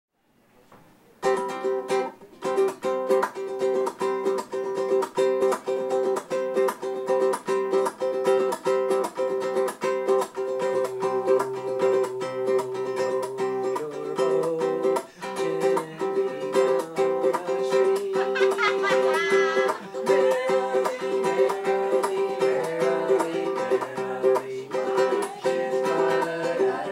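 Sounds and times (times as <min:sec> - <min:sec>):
ukulele strumming chords: 0:01.2 - 0:26.9.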